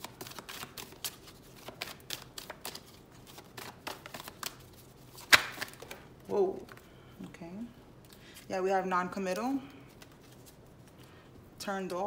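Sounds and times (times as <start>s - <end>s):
cards being shuffled: 0.0s - 6.8s, 9.9s - 11.0s
loud card snap: 5.2s - 6.0s.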